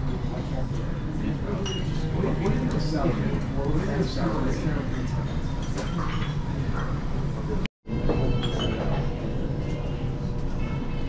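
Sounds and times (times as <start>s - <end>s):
dishes and glasses clinking: 1.6s - 2.0s, 5.3s - 7.0s.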